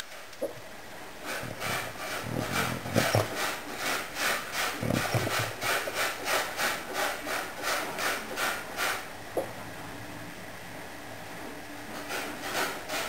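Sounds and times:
dog breathing in rasping puffs: 1.2s - 9.0s
low muffled dog sounds: 1.3s - 3.4s, 4.8s - 5.7s.

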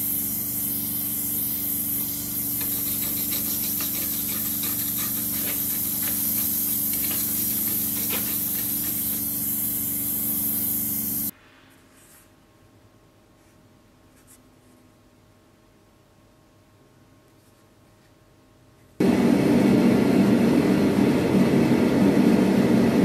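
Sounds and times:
gas torch flame hissing: 0.0s - 11.3s
wire brush scratching metal: 0.8s - 10.4s.

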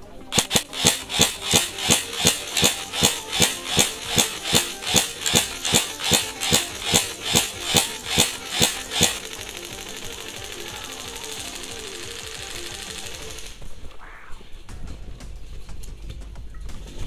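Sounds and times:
airsoft rifle firing shots: 0.3s - 13.6s.

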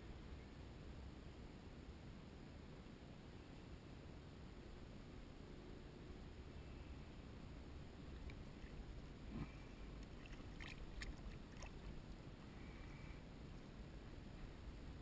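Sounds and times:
rumble of wind and water: 0.0s - 15.0s
water splashes and drips: 10.0s - 12.2s.

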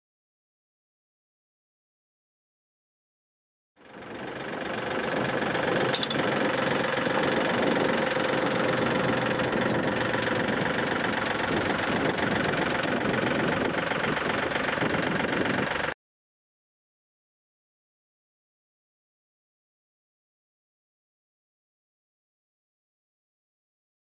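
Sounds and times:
tractor diesel engine running: 3.8s - 16.0s.

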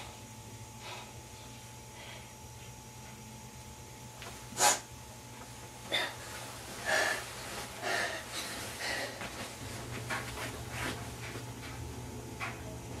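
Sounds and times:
person breathing heavily: 0.8s - 2.4s, 5.9s - 9.5s.

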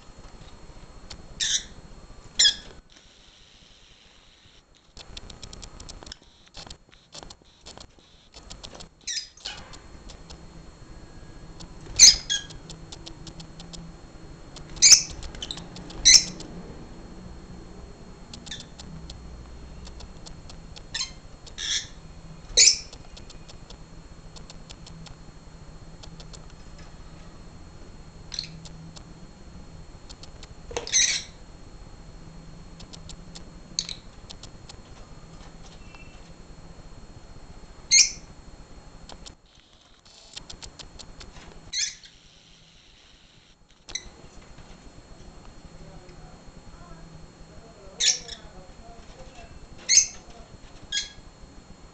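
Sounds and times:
lovebirds high-pitched calls: 1.4s - 1.8s, 2.4s - 2.7s, 9.0s - 9.6s, 11.9s - 12.6s, 14.8s - 16.4s, 18.4s - 18.8s, 20.9s - 22.0s, 22.6s - 23.0s, 28.3s - 28.6s, 30.8s - 31.4s, 33.8s - 34.1s, 37.9s - 38.3s, 41.7s - 42.2s, 48.0s - 48.5s, 49.8s - 50.2s, 50.9s - 51.2s.

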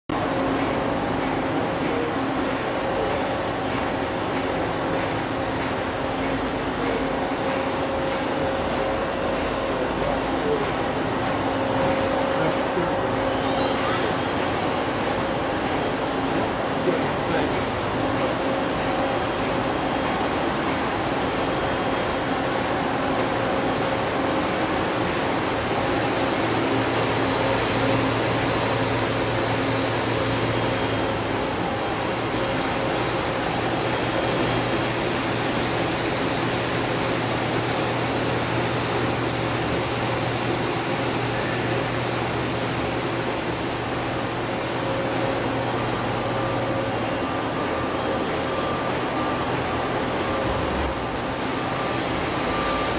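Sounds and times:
lathe hum and whir: 0.1s - 52.9s
faint high whines: 11.7s - 52.9s.

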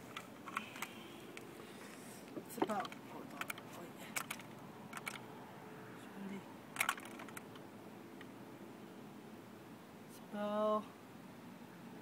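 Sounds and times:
fish scale clicks: 2.7s - 5.2s, 6.8s - 7.6s.

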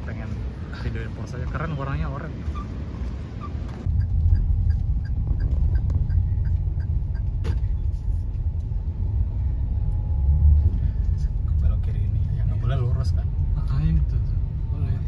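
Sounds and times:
car engine rumble: 0.0s - 15.0s
road noise: 0.0s - 15.0s.

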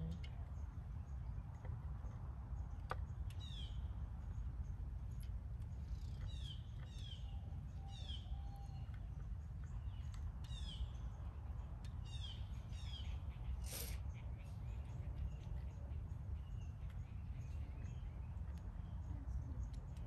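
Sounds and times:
low outdoor rumble: 0.0s - 20.0s
songbird chirping: 0.0s - 20.0s.

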